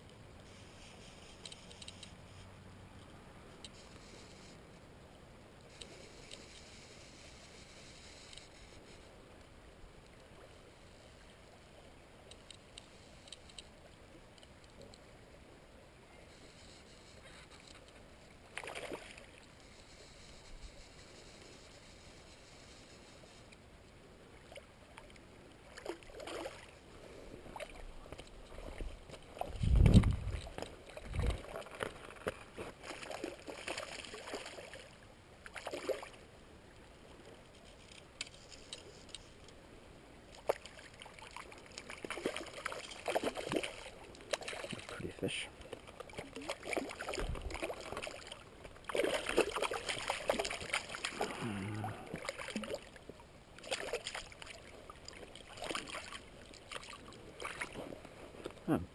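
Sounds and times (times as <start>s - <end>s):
water splashing and sloshing: 17.1s - 19.8s, 23.3s - 39.6s, 40.2s - 58.7s.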